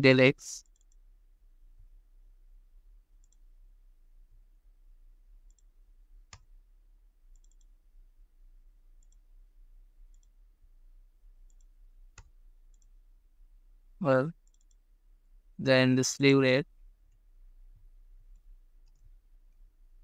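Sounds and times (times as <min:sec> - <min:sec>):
faint low hum: 0:00.0 - 0:20.0
keyboard and mouse clicks: 0:07.3 - 0:07.7, 0:14.4 - 0:14.8.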